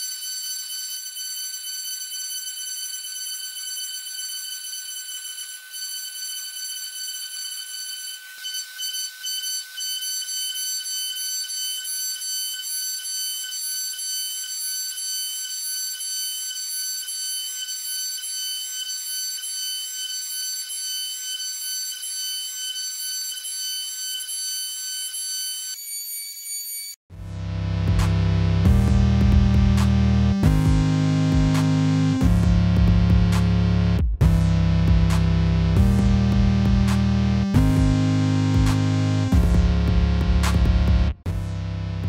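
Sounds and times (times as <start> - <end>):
router spindle high whine: 5.2 - 27.7.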